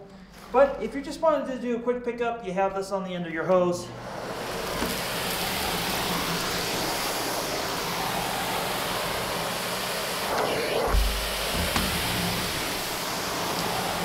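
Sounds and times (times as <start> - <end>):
vacuum cleaner running: 3.9 - 14.0.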